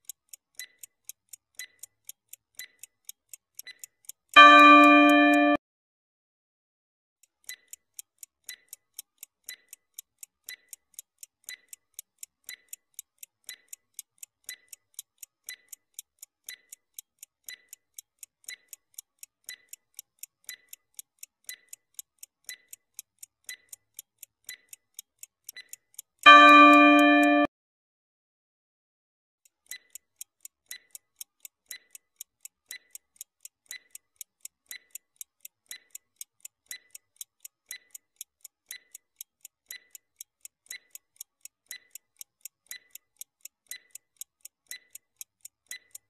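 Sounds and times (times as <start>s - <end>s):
clock ticking: 0.0s - 5.6s, 7.2s - 27.5s, 29.4s - 46.0s
alarm tone: 4.4s - 5.6s, 26.3s - 27.5s.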